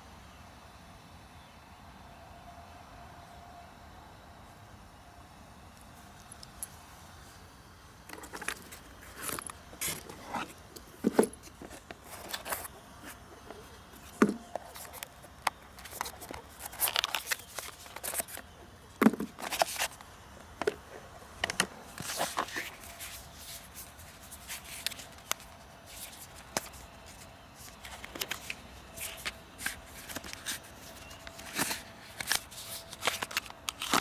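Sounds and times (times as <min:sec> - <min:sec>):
packing rustling: 0:08.1 - 0:20.0, 0:21.4 - 0:34.0.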